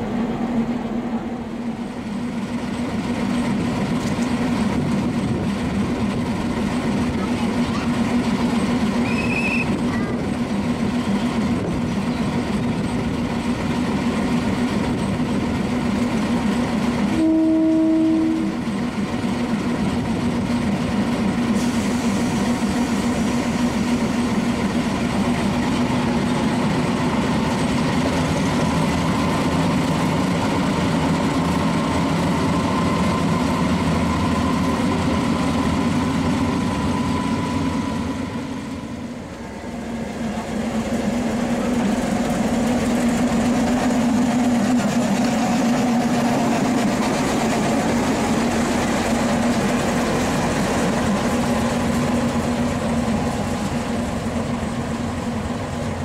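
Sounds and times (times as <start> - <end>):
diesel locomotive engine running: 0.0 - 56.0
locomotive horn blast: 17.1 - 18.6.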